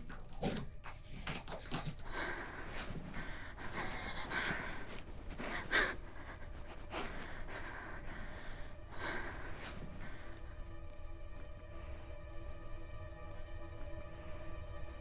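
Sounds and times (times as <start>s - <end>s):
woman gasping and crying: 2.0s - 10.4s.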